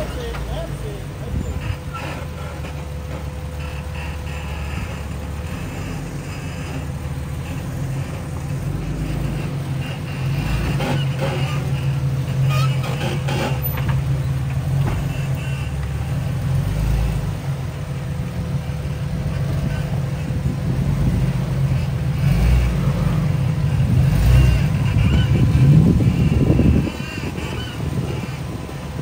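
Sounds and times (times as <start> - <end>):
engine running at low revs: 0.0 - 29.0.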